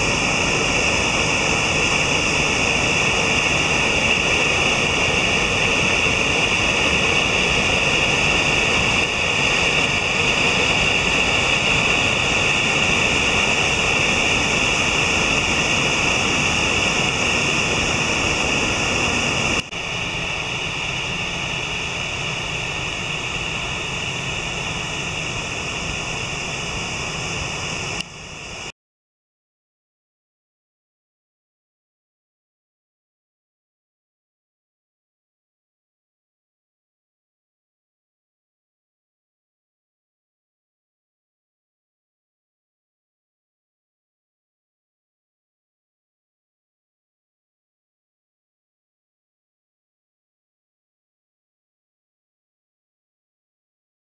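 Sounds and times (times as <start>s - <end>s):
waterfall roaring: 0.0s - 28.7s.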